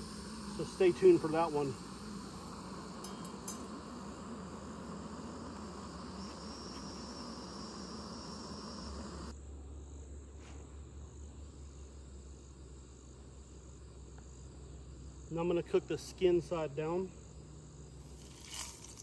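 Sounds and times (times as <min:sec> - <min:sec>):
camp stove burner hissing: 0:00.0 - 0:09.4, 0:13.8 - 0:19.0
low hum: 0:00.0 - 0:12.0
insects chirping: 0:00.0 - 0:19.0.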